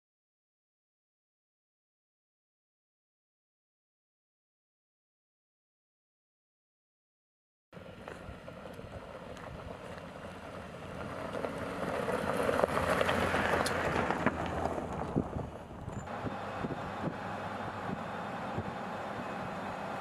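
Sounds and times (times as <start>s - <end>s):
gravel crackling under tyres: 7.8s - 20.0s
pickup truck driving past: 7.8s - 20.0s.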